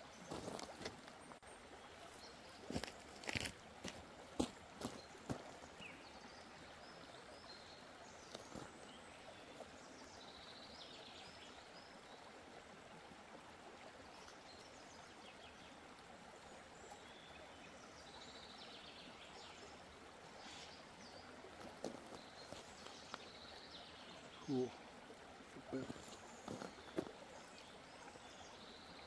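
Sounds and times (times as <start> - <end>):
river running over stones: 0.0 - 29.0
faint bird chirps: 20.4 - 20.8.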